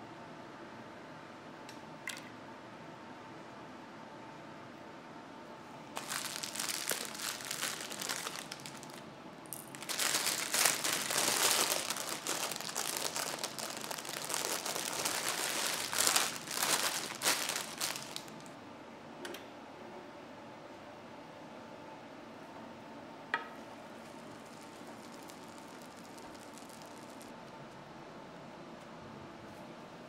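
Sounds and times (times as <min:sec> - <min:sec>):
plastic bag crinkling: 0:06.0 - 0:18.5, 0:24.0 - 0:27.4.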